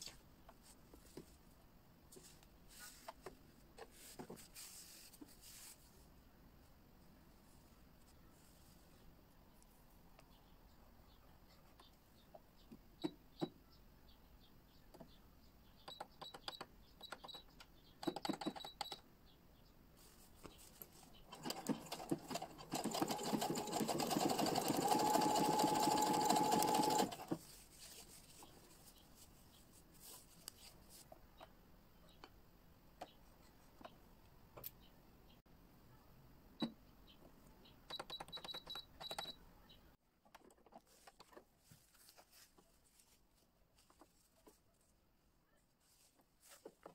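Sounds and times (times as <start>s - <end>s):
sewing machine stitching: 21.3s - 27.4s.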